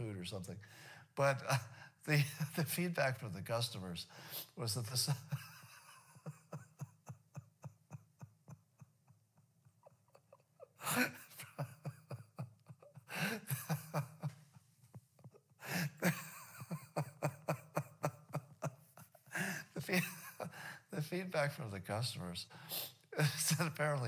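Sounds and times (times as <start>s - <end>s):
man laughing: 4.6s - 21.6s, 23.2s - 24.0s.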